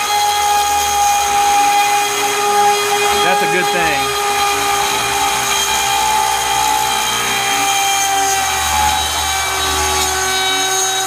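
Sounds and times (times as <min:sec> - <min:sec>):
hissing cutting noise: 0:03.2 - 0:04.2.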